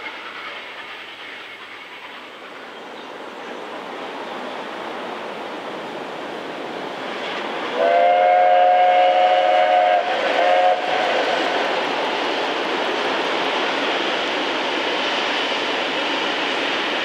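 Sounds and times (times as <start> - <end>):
steam locomotive running: 0.0 - 17.0
steam whistle blasts: 7.7 - 11.3.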